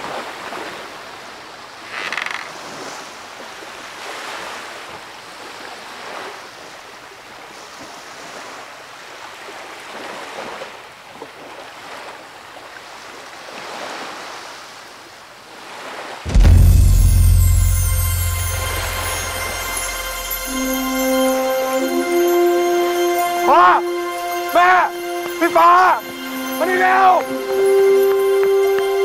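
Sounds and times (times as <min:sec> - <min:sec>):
waves washing onto a beach: 0:00.0 - 0:16.2.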